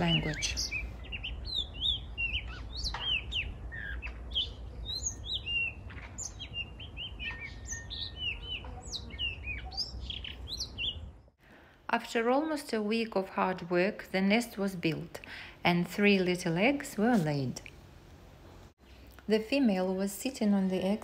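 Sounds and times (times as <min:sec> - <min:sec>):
bird singing whistled notes: 0:00.1 - 0:11.1.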